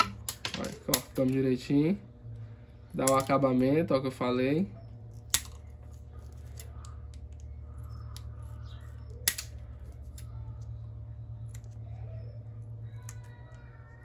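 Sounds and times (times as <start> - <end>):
steady low hum: 0.0 - 14.0
scissors snipping plastic: 5.1 - 5.7.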